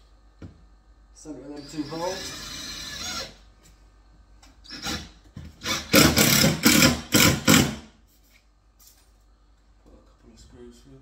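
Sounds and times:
impact driver boring through chipboard: 1.6s - 3.4s, 4.7s - 7.8s.

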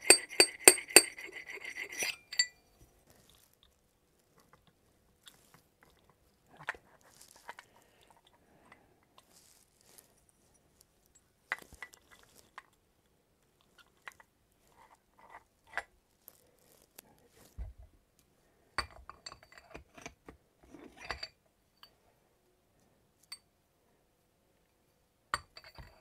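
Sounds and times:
metallic clinks of small parts: 0.0s - 2.6s.

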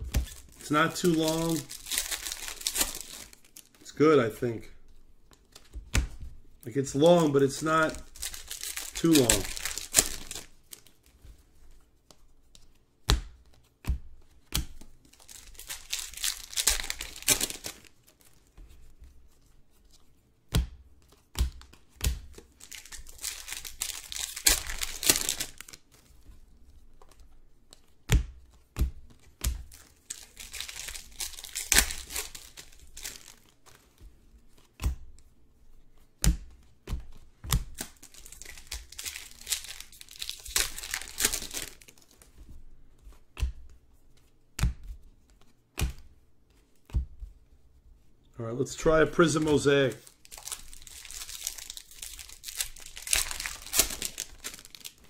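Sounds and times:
plastic wrappers tearing: 0.2s - 3.9s, 7.0s - 11.0s, 15.1s - 18.2s, 22.4s - 25.9s, 29.7s - 33.6s, 37.7s - 42.2s, 48.7s - 55.0s
cards knocking: 7.2s - 10.5s.

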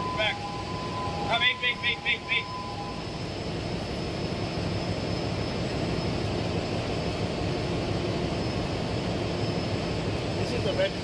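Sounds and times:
engine room machinery hum: 0.0s - 11.0s
thin high whine: 0.0s - 11.0s.

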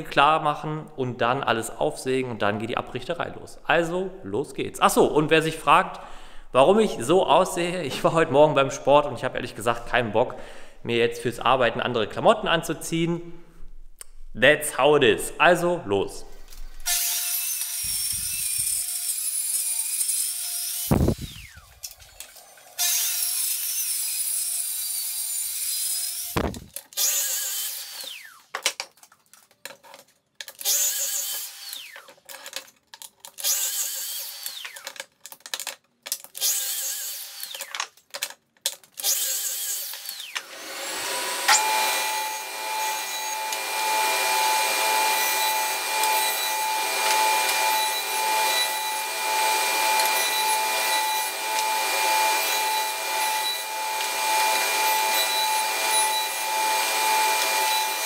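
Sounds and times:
track saw cutting planks: 16.8s - 28.5s, 30.6s - 32.3s, 33.4s - 35.0s, 36.4s - 37.8s, 39.0s - 58.0s
mitre saw crosscuts: 16.8s - 38.0s, 38.8s - 58.0s.

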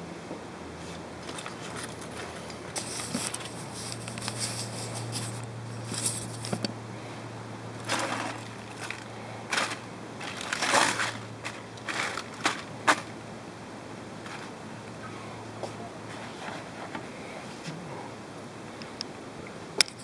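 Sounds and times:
aluminium foil crinkling: 1.2s - 6.7s, 7.8s - 13.1s.

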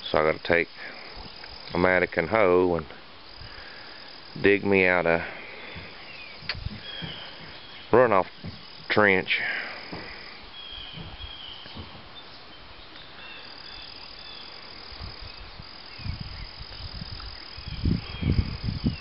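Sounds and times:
high-pitched insect trill: 0.0s - 12.3s, 13.2s - 19.0s
low thumps: 5.2s - 9.0s, 9.8s - 12.2s.

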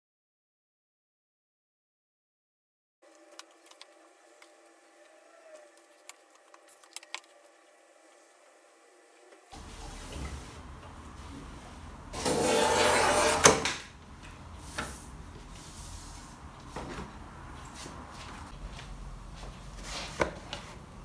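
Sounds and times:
paper trimmer cutting card: 12.2s - 13.6s.

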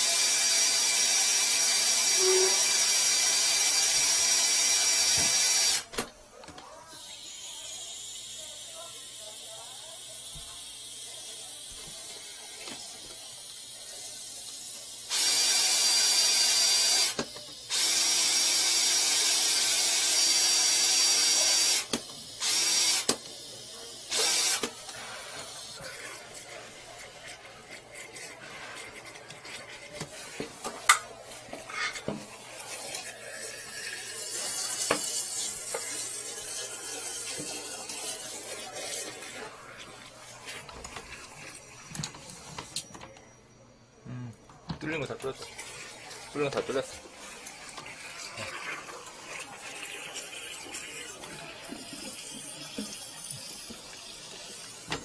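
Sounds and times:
power drill running: 15.1s - 23.1s, 24.1s - 24.7s.

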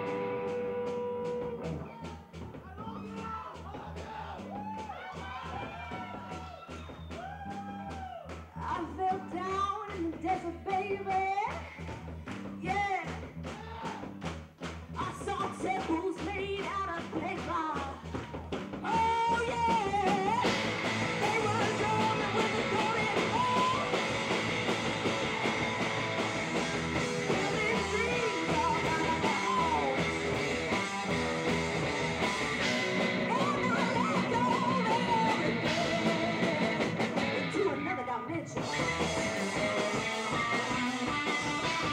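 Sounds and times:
electric guitars: 0.0s - 1.9s, 19.2s - 41.9s
drum kit: 0.0s - 41.9s
woman singing: 8.6s - 11.7s, 15.0s - 18.1s, 18.8s - 20.5s, 21.2s - 24.0s, 27.3s - 30.0s, 33.2s - 36.7s, 37.4s - 39.1s.

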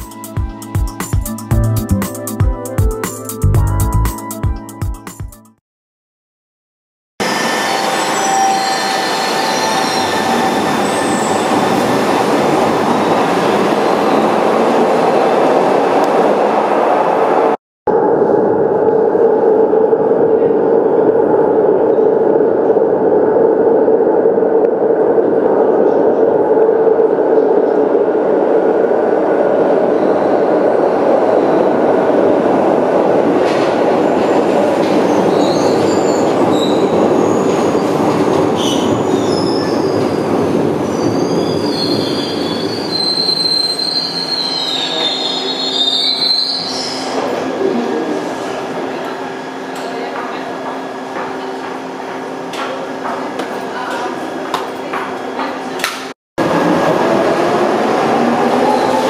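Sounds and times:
train wheels squealing: 7.2s - 11.8s, 35.0s - 47.4s
subway train rumbling in tunnel: 7.2s - 59.0s.

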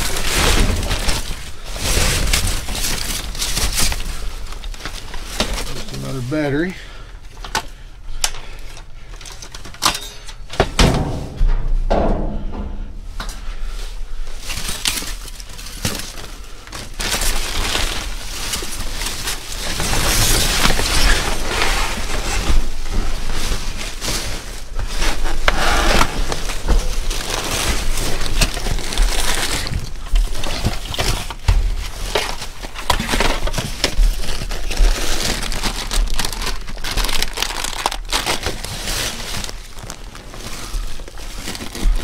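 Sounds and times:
plastic bags crinkling: 0.0s - 6.7s, 14.4s - 25.4s, 26.2s - 42.0s
objects clattering: 7.4s - 13.6s.

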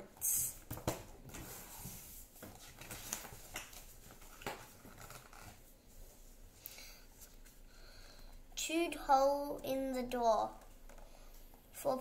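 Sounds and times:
paper pages turning: 0.8s - 5.6s.

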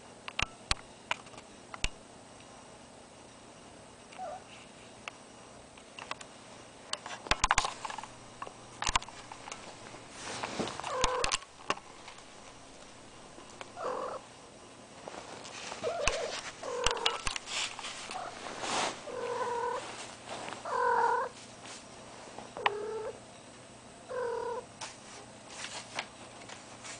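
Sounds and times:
rustling: 7.1s - 14.2s, 15.0s - 21.9s
cat calling: 10.9s - 11.4s, 13.6s - 14.2s, 19.1s - 19.8s.

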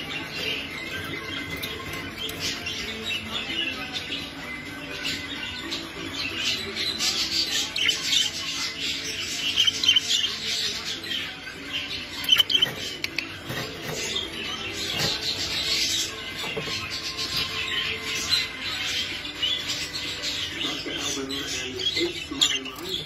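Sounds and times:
budgerigars chattering: 6.2s - 23.0s.

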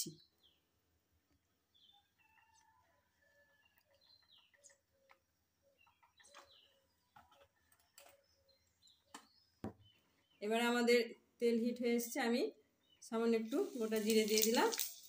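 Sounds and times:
faint chicken clucking: 1.4s - 9.2s.

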